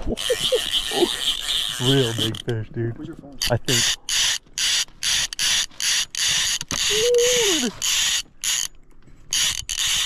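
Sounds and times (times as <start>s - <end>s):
fly reel drag buzzing: 0.1s - 2.4s, 9.3s - 10.0s.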